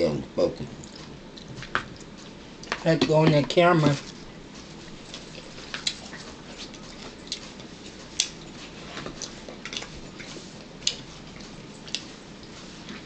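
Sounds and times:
eating clicks and smacks: 5.1 - 12.6.

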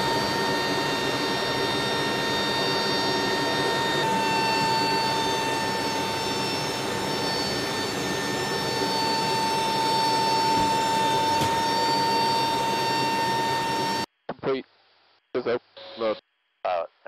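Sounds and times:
aircraft cabin roar: 0.0 - 14.1
high steady whine: 0.0 - 14.5.

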